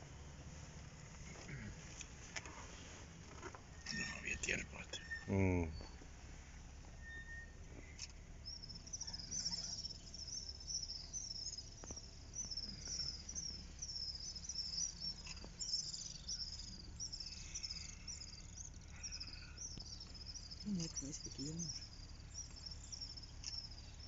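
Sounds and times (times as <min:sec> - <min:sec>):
low steady rumble: 0:00.0 - 0:24.0
small animal chirping: 0:08.0 - 0:24.0.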